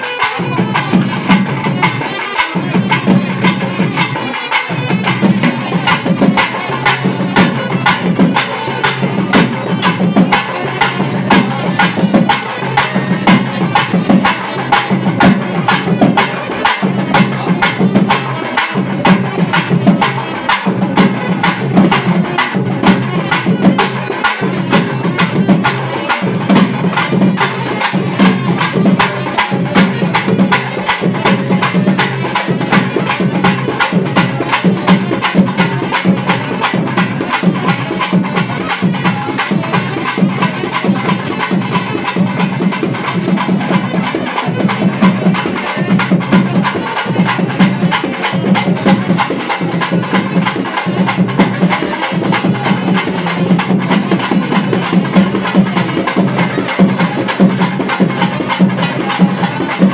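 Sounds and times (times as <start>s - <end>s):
drums and clappers beating: 0.0s - 59.9s.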